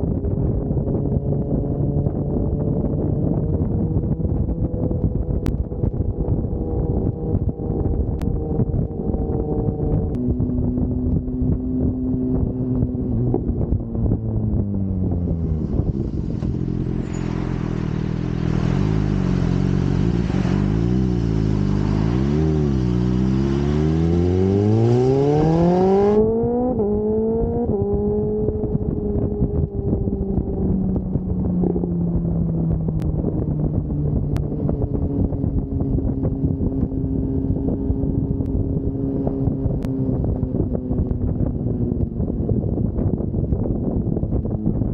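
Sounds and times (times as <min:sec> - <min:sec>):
motorcycle engine: 0:00.0 - 0:44.8
wind rushing: 0:12.8 - 0:44.9.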